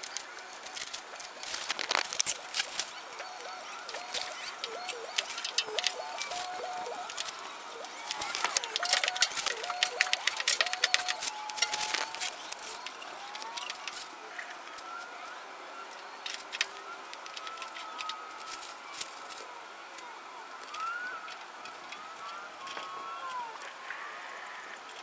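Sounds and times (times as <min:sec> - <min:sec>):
plastic garbage bag crackling: 0:00.0 - 0:14.1
faint high gliding whistles: 0:01.5 - 0:19.2, 0:20.2 - 0:21.4.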